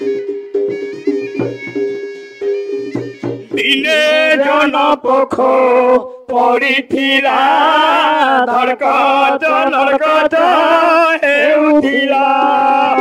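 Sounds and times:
man singing chant-like melody: 0:03.6 - 0:13.0.

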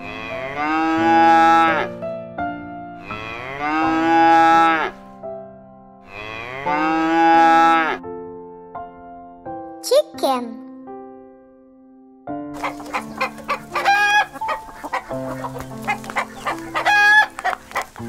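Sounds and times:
cow mooing: 0:00.0 - 0:01.9, 0:03.0 - 0:05.0, 0:06.1 - 0:08.0
soft keyboard music: 0:06.7 - 0:18.0.

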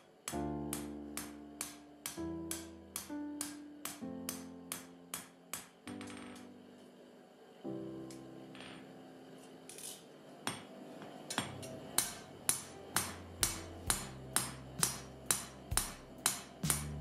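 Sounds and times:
hammer striking metal blade: 0:00.0 - 0:05.8, 0:11.3 - 0:17.0.

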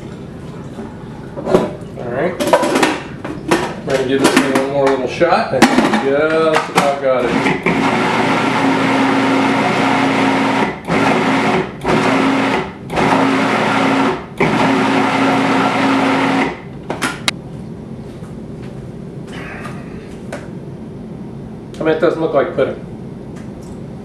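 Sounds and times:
food processor motor hum: 0:07.2 - 0:16.6.

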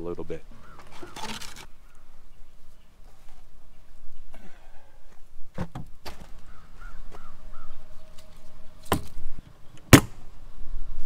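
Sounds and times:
bird calling: 0:00.4 - 0:05.2, 0:06.2 - 0:10.0.

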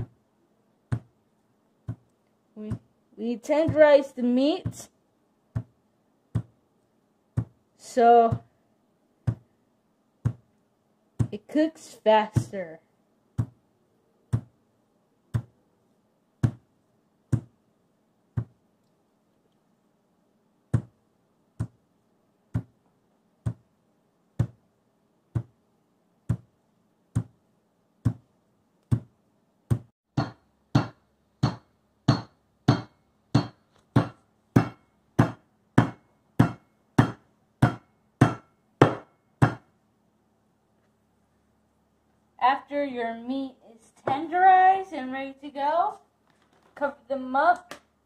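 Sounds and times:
meat mallet striking pork chop: 0:30.2 - 0:39.7.

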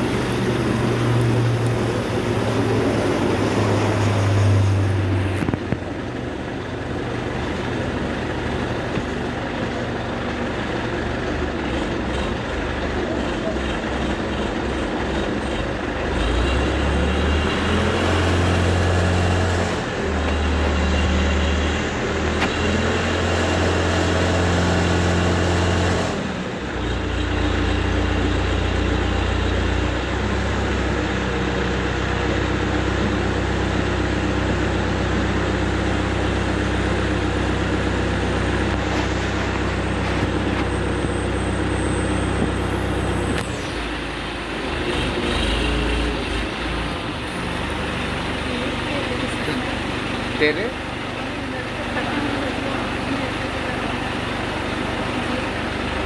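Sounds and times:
diesel engine running under load: 0:00.0 - 0:56.0.

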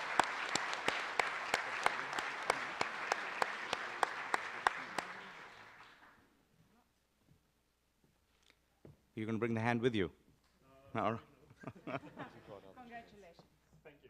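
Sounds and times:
audience applauding: 0:00.0 - 0:06.2
close rhythmic hand clapping: 0:00.0 - 0:06.2.

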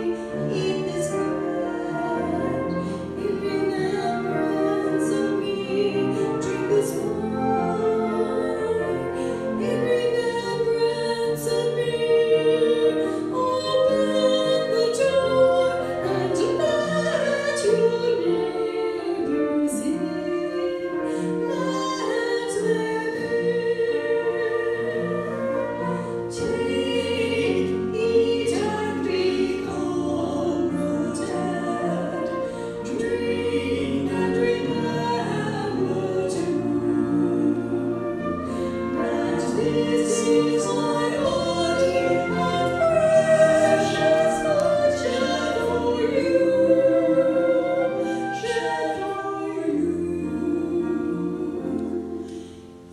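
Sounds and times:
piano accompaniment: 0:00.0 - 0:52.9
women singing a hymn: 0:00.0 - 0:52.9.

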